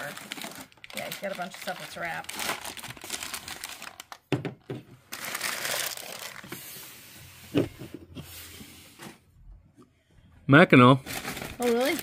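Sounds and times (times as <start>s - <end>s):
packing paper rustling: 0.0s - 4.2s, 5.0s - 7.0s, 11.0s - 12.0s.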